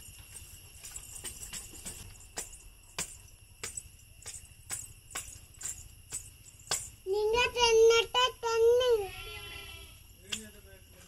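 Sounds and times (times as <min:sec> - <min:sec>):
small metal jingling: 0:00.0 - 0:08.6.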